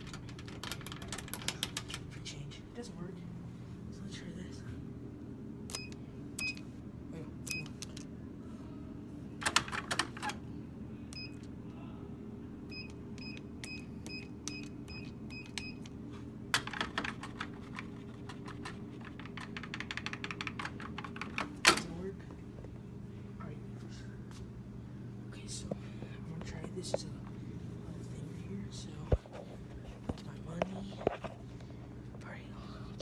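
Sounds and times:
keypad beeping: 5.7 - 6.6, 7.5 - 7.8, 12.7 - 15.9.

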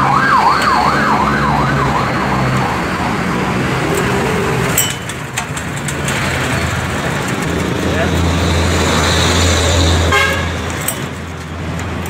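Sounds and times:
siren warbling: 0.0 - 4.8.

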